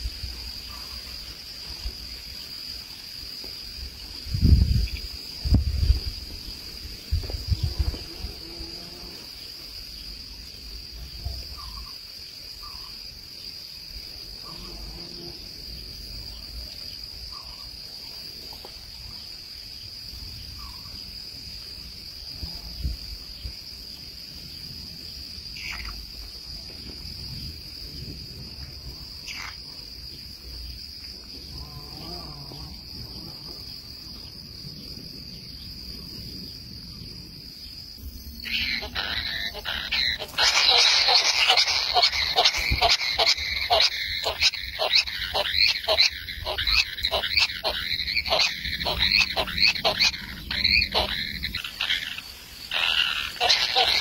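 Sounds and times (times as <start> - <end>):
insect drone: 0.0 - 54.0
short falling calls: 38.4 - 54.0.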